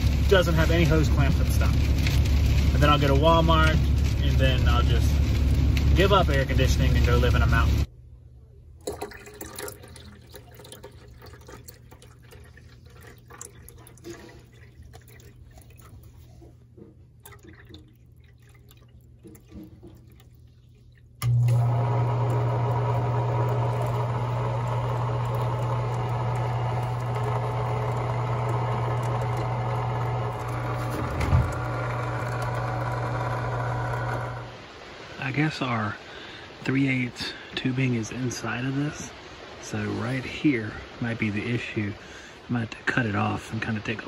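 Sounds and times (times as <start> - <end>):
pump motor humming: 0.0 - 7.9, 8.8 - 35.2
water trickling and dripping: 8.8 - 30.8.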